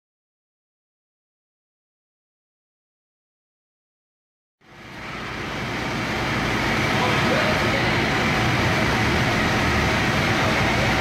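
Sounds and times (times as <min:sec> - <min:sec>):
dust extraction vacuum and mixer running: 0:04.6 - 0:11.0.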